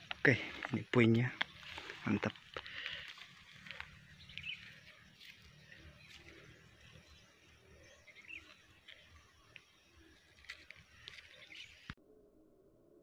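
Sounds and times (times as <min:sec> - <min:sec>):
faint outdoor ambience: 0:00.0 - 0:13.0
faint bird chirps: 0:02.8 - 0:12.0.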